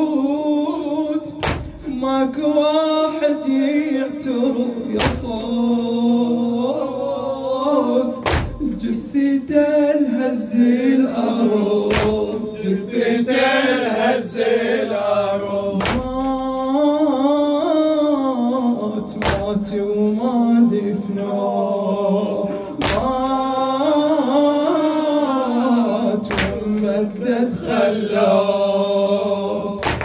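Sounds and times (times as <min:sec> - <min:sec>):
man singing a lament unaccompanied: 0:00.0 - 0:30.0
chest-beating slaps: 0:01.4 - 0:01.9, 0:05.0 - 0:05.3, 0:08.2 - 0:08.7, 0:11.9 - 0:12.2, 0:15.8 - 0:16.2, 0:19.2 - 0:19.5, 0:22.8 - 0:23.1, 0:26.3 - 0:26.9, 0:29.8 - 0:30.0.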